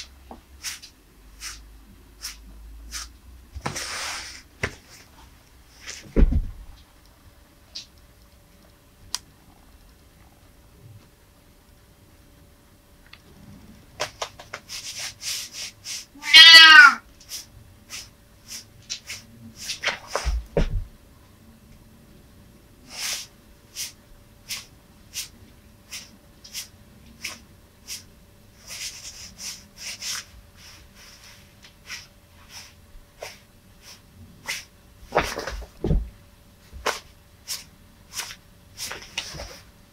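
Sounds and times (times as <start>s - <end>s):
low thump: 6.2s - 6.7s
cat meowing: 16.2s - 17.0s.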